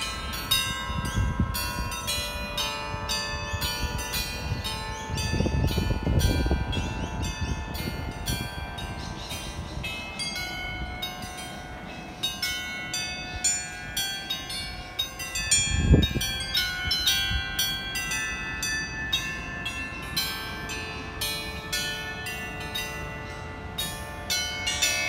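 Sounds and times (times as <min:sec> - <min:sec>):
bells playing a melody: 0:00.0 - 0:25.0.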